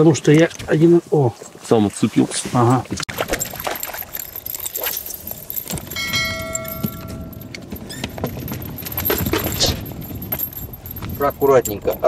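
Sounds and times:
metal fishing tackle clinking: 0:03.2 - 0:12.0
steady ringing tone: 0:03.5 - 0:12.0.

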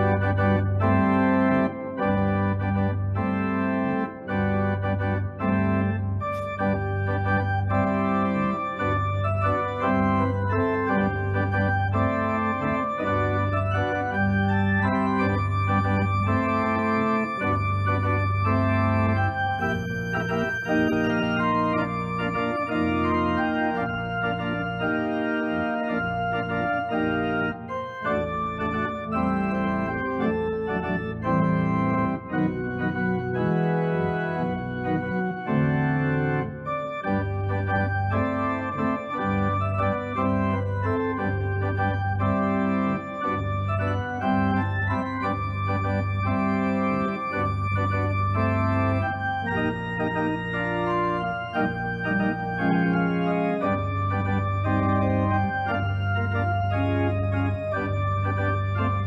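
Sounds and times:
organ chords: 0:00.0 - 0:59.0.

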